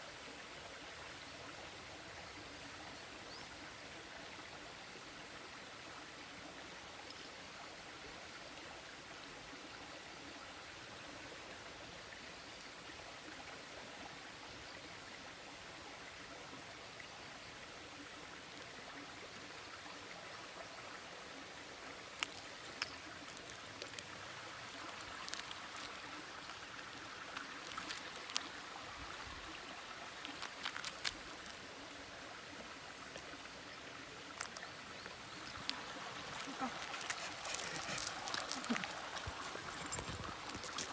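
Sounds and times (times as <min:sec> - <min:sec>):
small sharp clicks and scuffs: 0:22.2 - 0:28.5, 0:30.2 - 0:31.6, 0:35.5 - 0:40.9.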